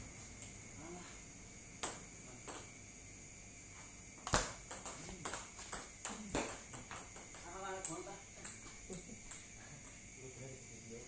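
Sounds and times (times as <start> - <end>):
ball bouncing on table: 4.2 - 8.7.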